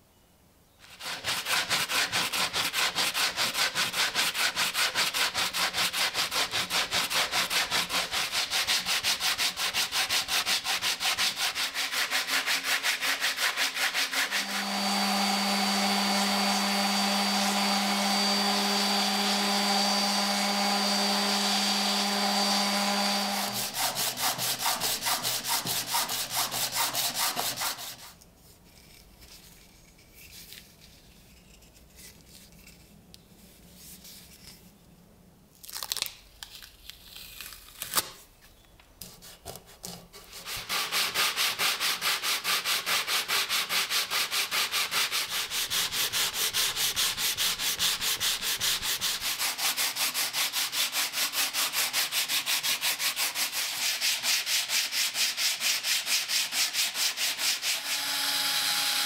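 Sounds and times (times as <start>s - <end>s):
sandpaper rubbing on wood: 0.8s - 14.7s, 22.4s - 28.2s, 39.0s - 58.0s
electric sander humming: 14.1s - 27.9s.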